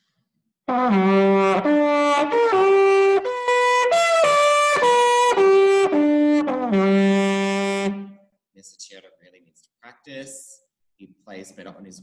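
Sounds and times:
trumpet playing held notes: 0.7 - 8.2.

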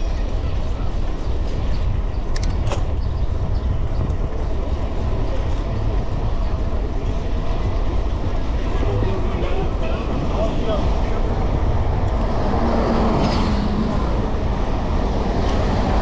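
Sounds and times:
road noise: 0.0 - 16.0
wind rumble on microphone: 0.0 - 16.0.

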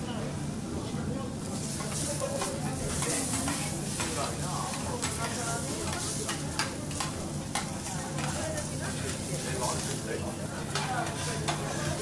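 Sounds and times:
prawns sizzling on a griddle: 1.3 - 12.0
knife and fork tapping metal plate: 2.4 - 8.3.

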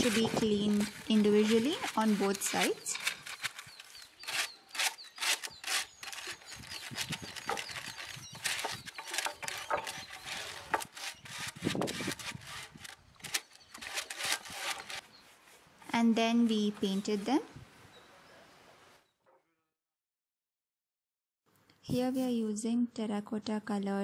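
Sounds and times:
brush scrubbing clay tiles: 0.0 - 12.9.

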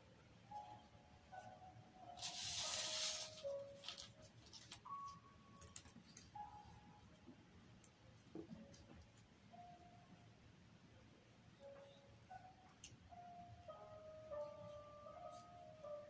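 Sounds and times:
faint soft musical notes: 0.0 - 16.0
crepe paper and wire rustling: 2.2 - 6.3.

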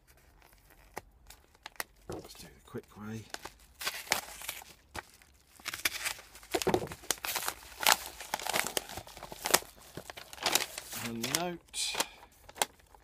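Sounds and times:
packaging ripping and crinkling: 3.1 - 13.0.

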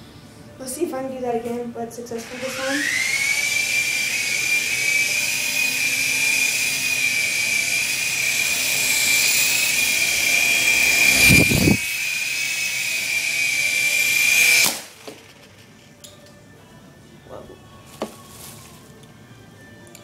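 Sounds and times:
toy helicopter rotor whine: 2.2 - 16.0.

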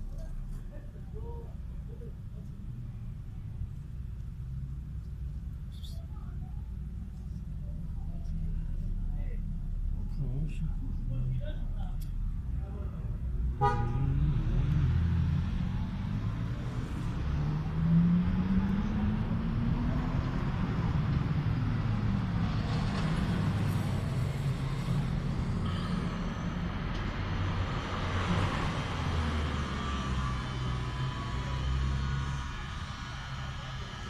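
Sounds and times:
drone of passing vehicles: 6.7 - 34.0
louder vehicle passing: 13.6 - 34.0
engine rising in pitch: 26.3 - 34.0.

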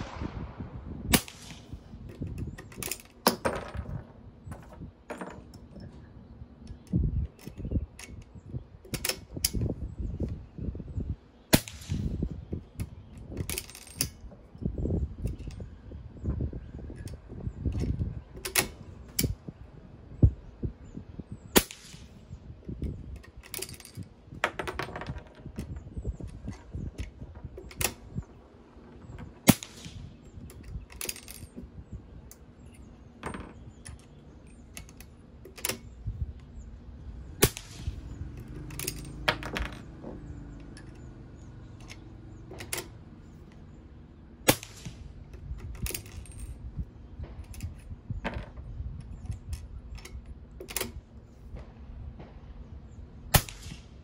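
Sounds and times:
suppressed rifle shots: 0.0 - 1.8, 53.3 - 54.0.

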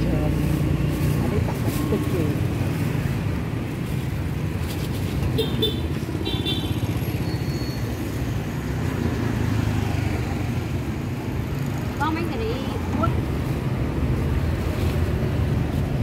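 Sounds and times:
road traffic rumble: 0.0 - 16.0
short high squeaks: 7.2 - 8.0.

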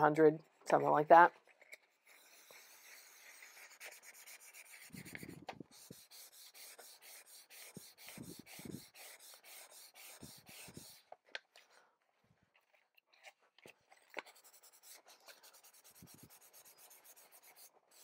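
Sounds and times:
sandpaper scraping paper: 1.9 - 11.1, 14.2 - 18.0.

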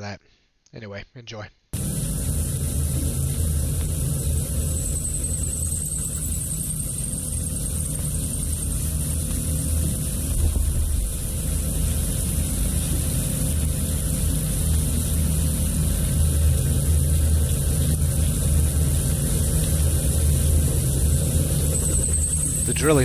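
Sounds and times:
coolant spray hissing: 1.8 - 23.0
mill drilling steel: 1.8 - 23.0.

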